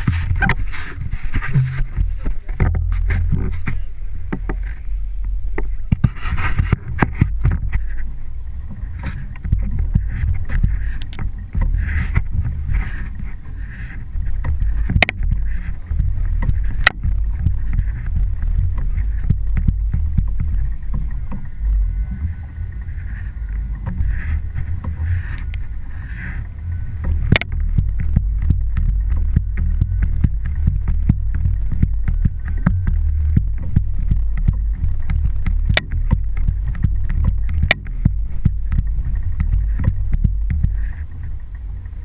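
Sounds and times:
sharp clicks and knocks: 0.0 - 8.1, 8.7 - 42.0
boat engine rumble: 0.0 - 42.0
wind on microphone: 0.0 - 42.0.

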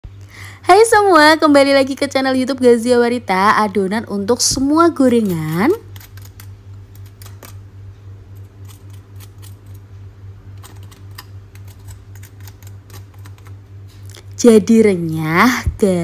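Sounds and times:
low hum: 0.0 - 16.0
knife cutting crispy batter: 5.0 - 7.6, 8.3 - 9.8, 10.5 - 13.6.

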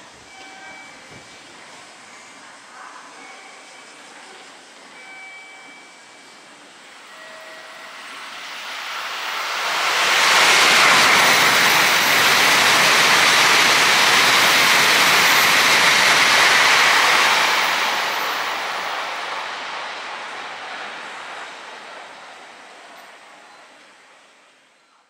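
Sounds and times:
train rushing past: 6.0 - 24.6.

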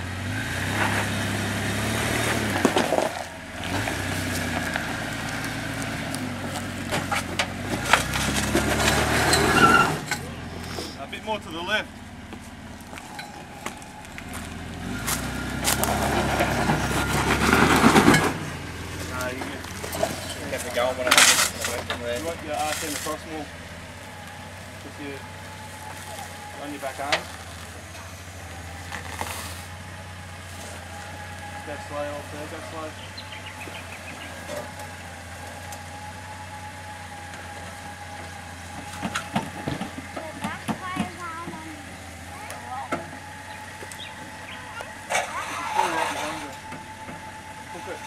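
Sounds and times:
off-road vehicle engine under load: 0.0 - 48.0
tyres crunching over rock: 0.6 - 10.8, 11.5 - 36.0.

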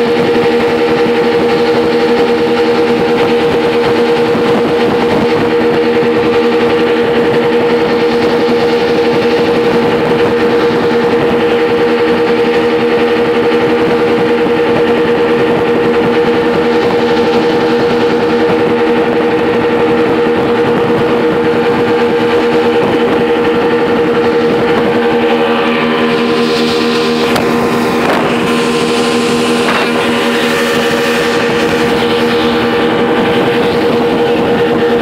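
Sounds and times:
outboard motors running steadily: 0.0 - 35.0
water rushing and spraying: 20.8 - 35.0.

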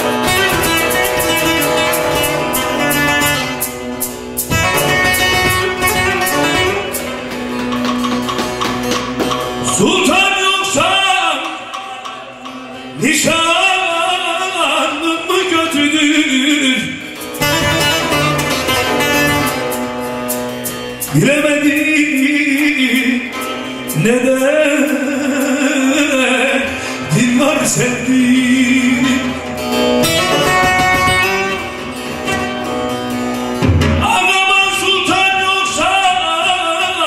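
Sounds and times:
electric saz plucked with drone: 0.0 - 9.8, 17.3 - 21.1, 29.0 - 34.0
man singing folk song: 9.6 - 17.6, 21.0 - 31.3, 34.0 - 37.0.

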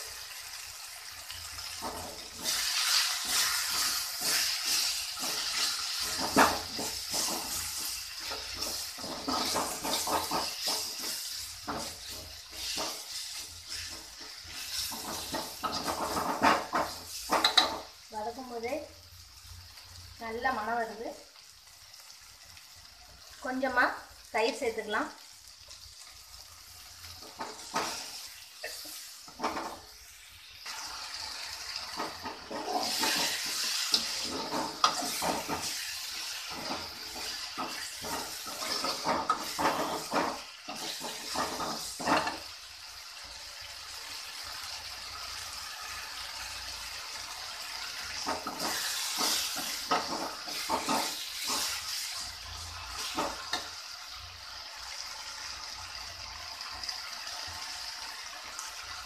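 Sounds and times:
masala sizzling in hot oil: 0.0 - 59.0
ladle scraping against pan: 31.9 - 42.5, 48.2 - 52.2.

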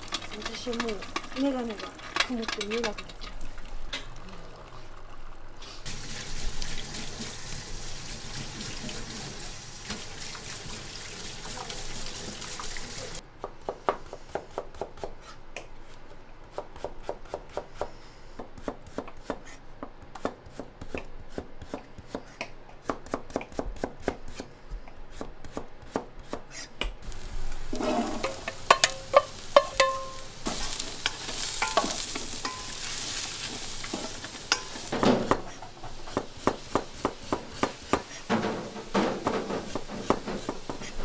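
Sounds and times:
water running: 0.0 - 13.2, 27.1 - 41.0.

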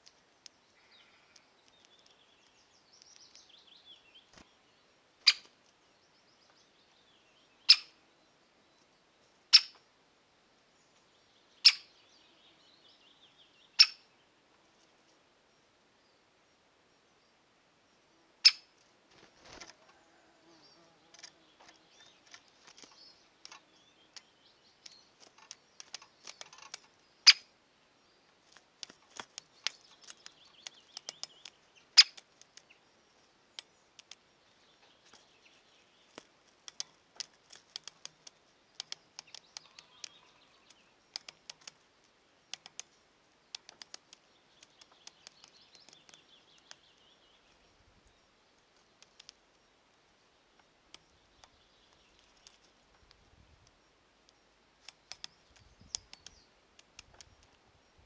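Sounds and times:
distant birdsong: 0.0 - 58.0
sharp clicks and taps: 21.1 - 26.9, 28.5 - 32.7, 33.6 - 34.2, 36.1 - 40.2, 41.1 - 41.8, 42.5 - 42.9, 43.5 - 46.8, 48.8 - 49.4, 50.9 - 57.6.

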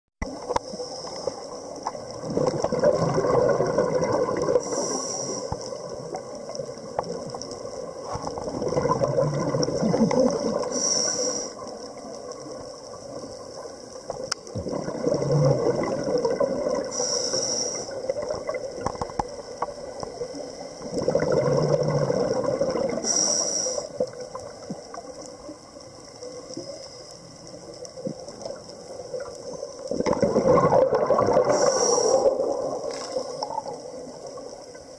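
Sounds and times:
regulator inhale hiss: 0.5 - 1.8, 4.5 - 6.0, 10.5 - 12.1, 16.8 - 18.2, 22.9 - 24.3, 31.4 - 33.8
exhaust bubbles gurgling: 1.6 - 4.8, 5.7 - 10.8, 14.1 - 17.1, 20.8 - 23.2, 28.0 - 34.8.

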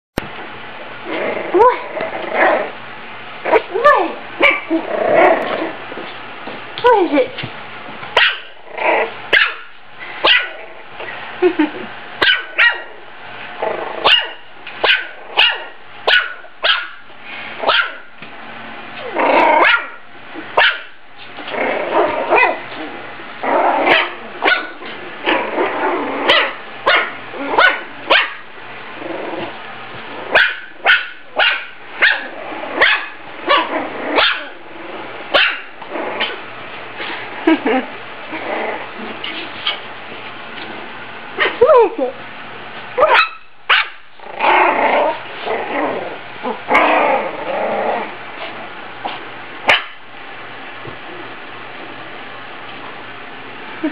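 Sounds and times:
puppy growling: 0.9 - 2.8, 3.4 - 6.1, 8.4 - 9.3, 10.2 - 15.8, 18.9 - 20.6, 21.3 - 28.1, 28.8 - 31.4, 32.0 - 39.9, 44.1 - 49.8
puppy yapping: 3.5 - 5.5, 8.2 - 10.6, 12.2 - 12.9, 14.0 - 17.0, 17.6 - 18.1, 19.0 - 20.0, 20.6 - 20.9, 23.8 - 28.4, 30.3 - 34.6, 35.3 - 36.4, 43.0 - 45.2, 49.7 - 50.0.

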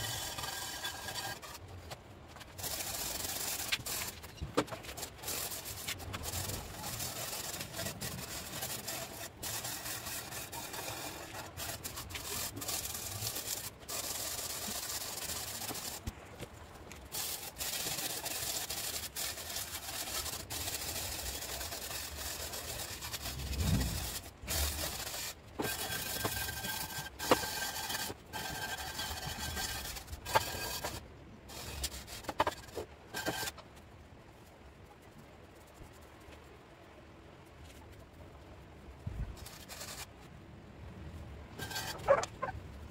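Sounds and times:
hand scraper scraping paint off steel: 17.2 - 31.0.

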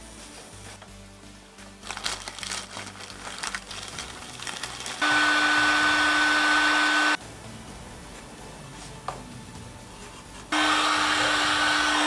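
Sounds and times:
plastic bag crinkling: 1.8 - 5.0
heat gun fan whine: 5.0 - 7.2, 10.5 - 12.0.

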